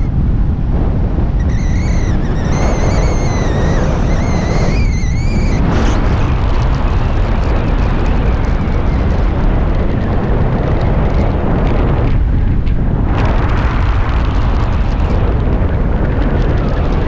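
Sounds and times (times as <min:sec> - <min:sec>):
wind buffeting microphone: 0:00.0 - 0:17.0
high wavering whistle tone: 0:01.4 - 0:06.0.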